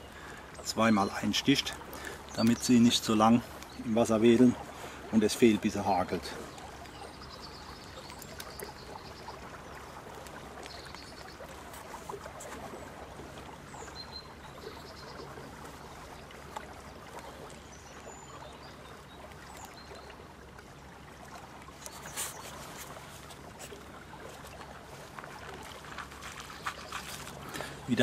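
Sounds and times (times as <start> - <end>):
river water rushing: 19.2 - 28.0.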